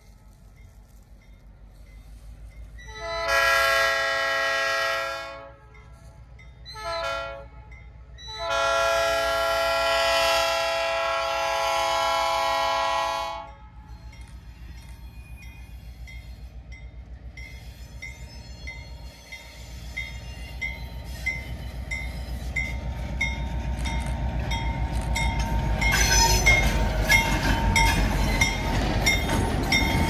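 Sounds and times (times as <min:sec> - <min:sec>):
locomotive air horn blasts: 0:02.9 - 0:05.8, 0:06.8 - 0:07.7, 0:08.4 - 0:13.6.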